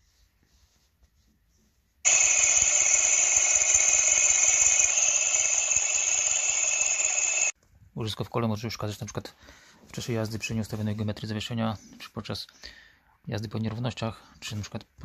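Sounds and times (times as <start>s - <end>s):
bearing rushing hum with whine: 2.1s - 7.6s.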